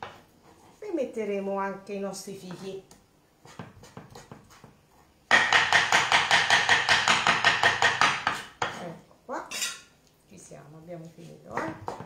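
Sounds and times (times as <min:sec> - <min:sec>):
knife chopping on wooden board: 0:03.4 - 0:08.8, 0:11.6 - 0:12.0.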